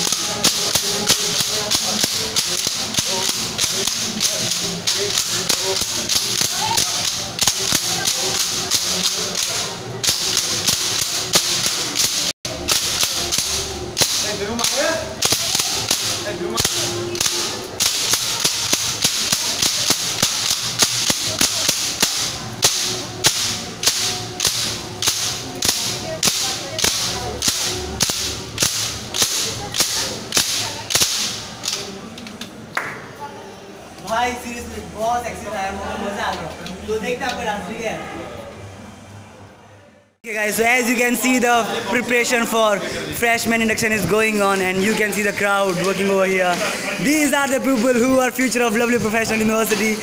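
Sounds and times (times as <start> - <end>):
wooden clappers clacking: 0.0 - 32.5, 43.4 - 50.0.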